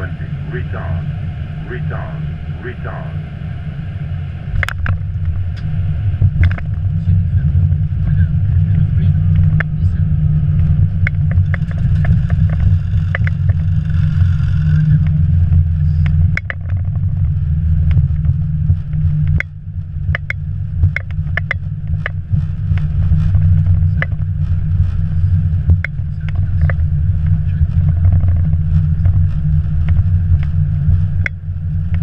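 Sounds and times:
airliner rolling on runway rumble: 0.0 - 32.0
knocks and rattles: 10.6 - 17.3.

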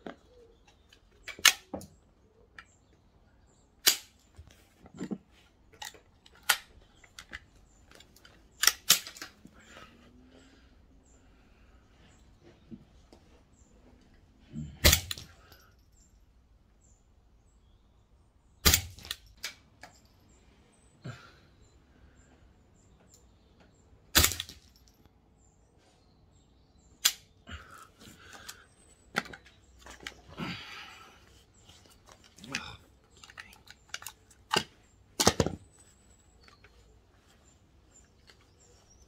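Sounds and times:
rifle action clicks: 1.2 - 1.9, 8.6 - 9.4
rifle bolt rattling: 5.7 - 9.4, 33.2 - 35.6.

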